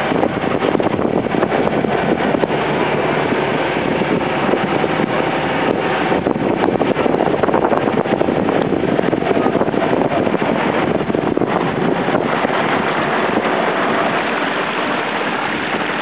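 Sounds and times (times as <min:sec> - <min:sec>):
boat engine droning: 0:00.0 - 0:16.0.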